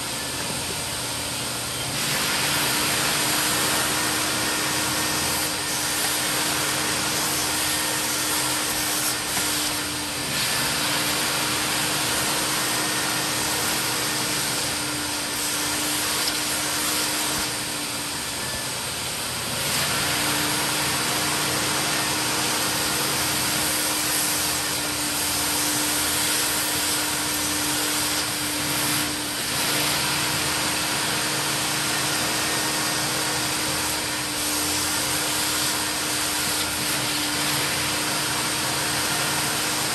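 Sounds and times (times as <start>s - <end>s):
rushing air suction: 0.0s - 18.6s
carpet extractor running: 0.0s - 39.9s.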